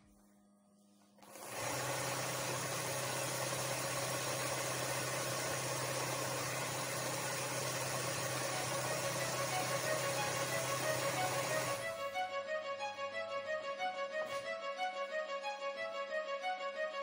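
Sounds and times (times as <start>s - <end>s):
motor humming: 1.2s - 12.2s.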